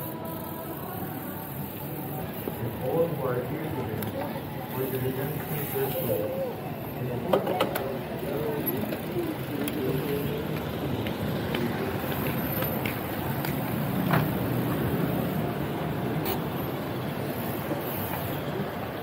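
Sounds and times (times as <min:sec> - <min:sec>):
bike clicks and rattles: 0:00.0 - 0:19.0
wind and road noise: 0:01.6 - 0:19.0.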